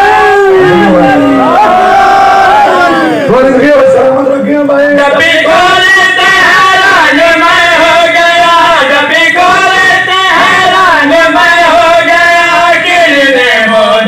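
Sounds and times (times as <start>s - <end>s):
man singing into a microphone: 4.8s - 14.0s.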